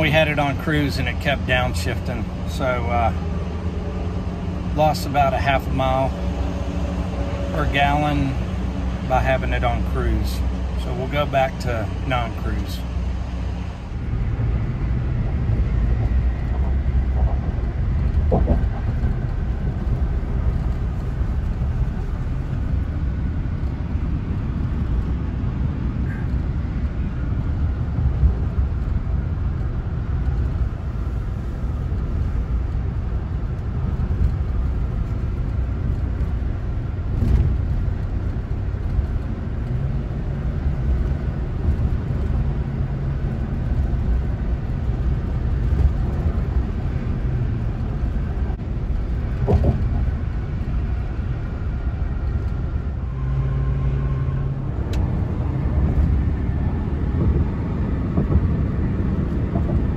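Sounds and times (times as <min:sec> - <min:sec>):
engine and road rumble: 0:00.0 - 0:59.9.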